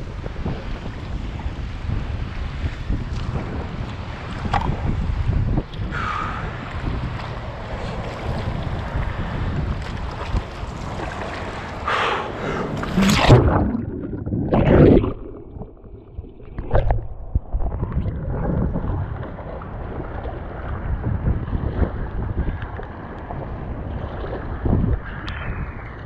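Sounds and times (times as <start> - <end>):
wind rumble on microphone: 0.0 - 26.0
paddle splashing water: 6.0 - 24.6
rippling current: 11.9 - 19.2.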